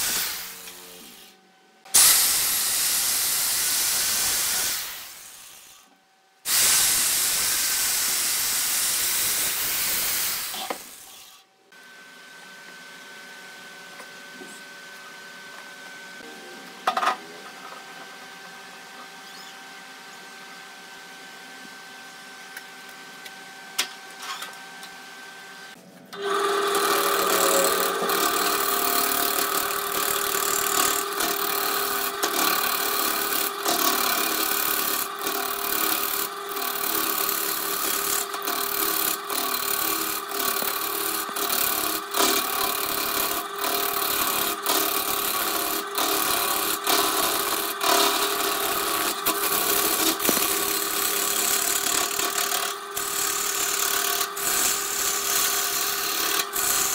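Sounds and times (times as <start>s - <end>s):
gouge scraping spinning wood: 26.2s - 56.9s
wood lathe motor hum: 26.2s - 56.9s.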